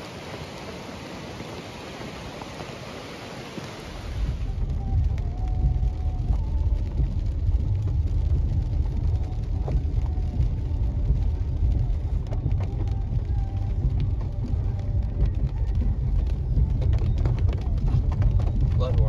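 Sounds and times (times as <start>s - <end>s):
rain ticking on windshield: 0.0s - 19.0s
vehicle cabin road rumble: 0.0s - 19.0s.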